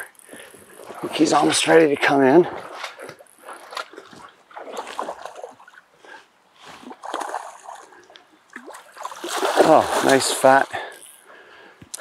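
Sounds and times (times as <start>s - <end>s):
fish thrashing and splashing: 8.6s - 10.6s.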